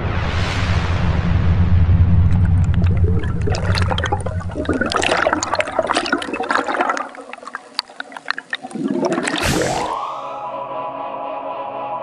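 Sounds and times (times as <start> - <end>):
water bubbling and gurgling: 2.1 - 10.2
water dripping: 2.3 - 9.6.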